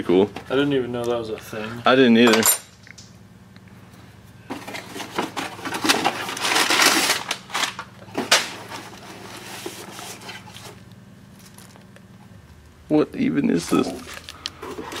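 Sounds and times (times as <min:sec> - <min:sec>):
cardboard box tearing and crinkling: 0:05.4 - 0:10.8.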